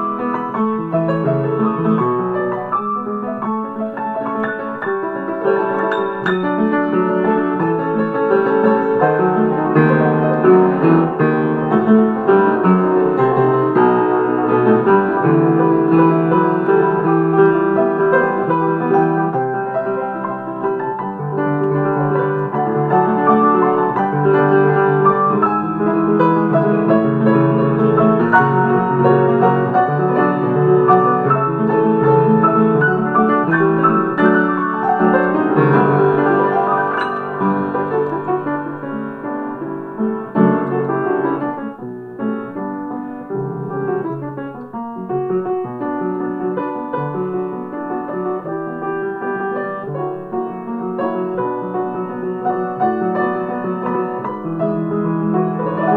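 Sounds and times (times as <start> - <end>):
piano music with quick notes: 0.0 - 55.9.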